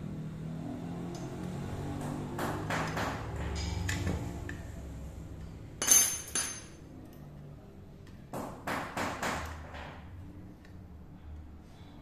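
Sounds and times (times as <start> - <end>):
metal tools clinking on metal: 5.8 - 7.2.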